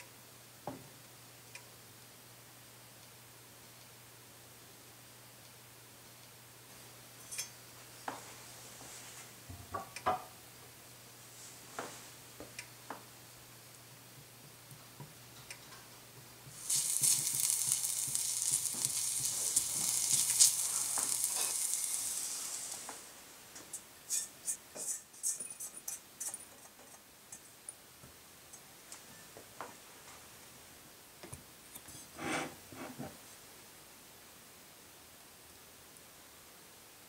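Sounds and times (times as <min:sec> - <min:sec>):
garlic sizzling in hot oil: 0:16.4 - 0:25.0
spatula clicking on pan: 0:16.6 - 0:22.0.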